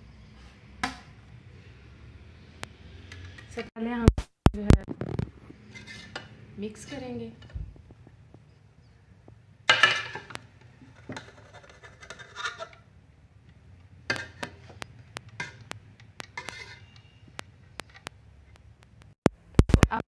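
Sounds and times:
spoon scraping a pot: 5.5 - 7.1, 9.7 - 12.9, 14.1 - 18.1.

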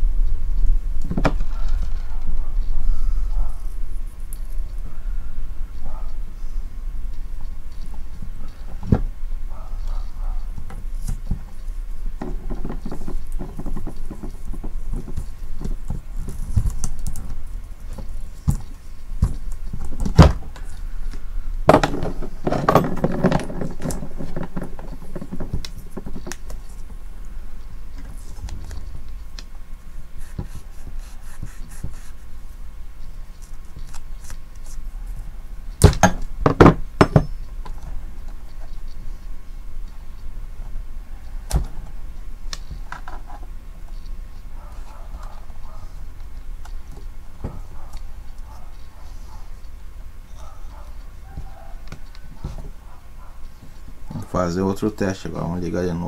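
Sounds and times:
steady low hum: 0.0 - 56.0
tools knocking and clinking: 21.7 - 25.4, 35.8 - 37.4.

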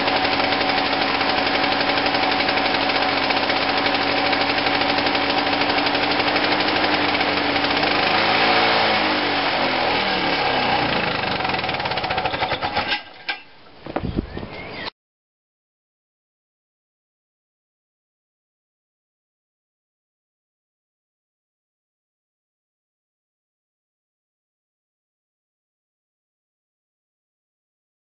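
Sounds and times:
lawn mower engine running: 0.0 - 13.5.

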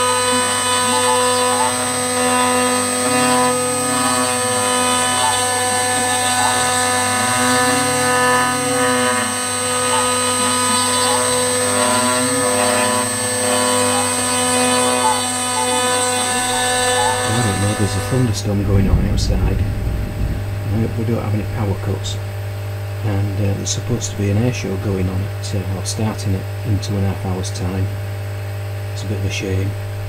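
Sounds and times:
cnc spindle whine: 0.0 - 30.0
end mill cutting metal: 0.0 - 30.0
low hum rising and falling: 16.6 - 25.4.

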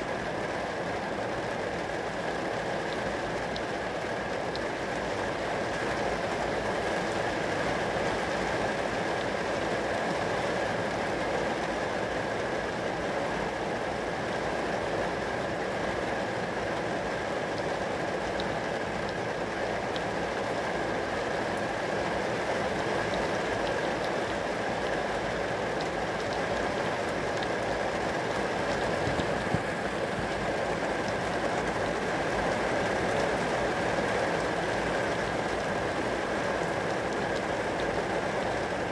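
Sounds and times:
rain pattering on glass: 0.0 - 38.9.

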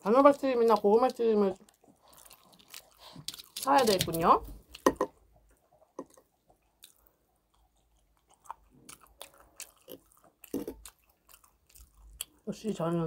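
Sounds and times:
close-up chewing and crunching: 0.0 - 13.0.

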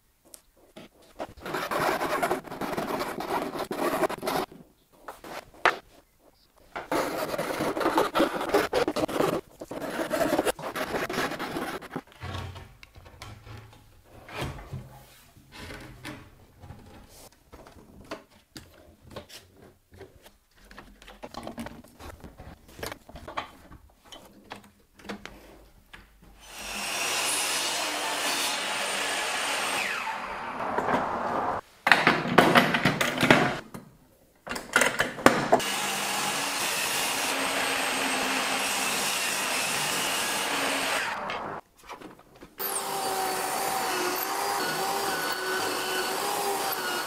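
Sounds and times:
panels rubbing and scraping: 0.6 - 17.3.

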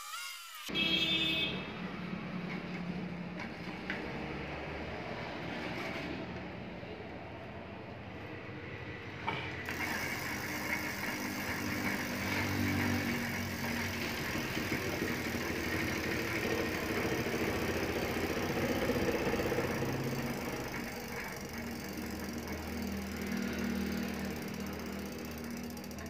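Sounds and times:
bicycle freewheel ratcheting: 9.6 - 26.0.

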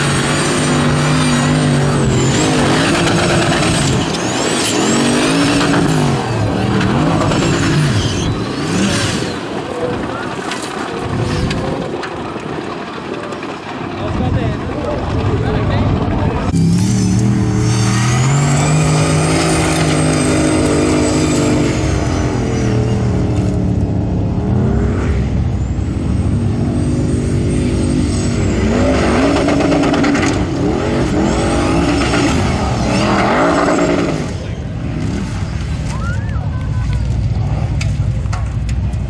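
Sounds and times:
buggy engine revving hard: 0.0 - 9.7, 16.4 - 35.9.

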